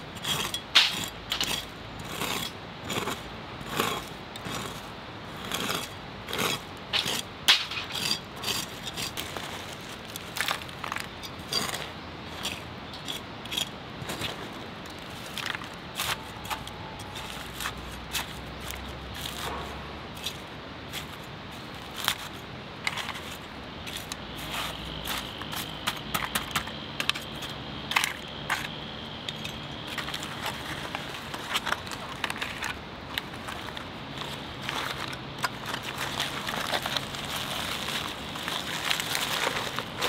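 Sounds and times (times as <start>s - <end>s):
metal tool scraping charcoal: 0.0s - 40.0s
charcoal lumps rattling: 0.2s - 40.0s
aluminium foil crinkling: 29.9s - 40.0s.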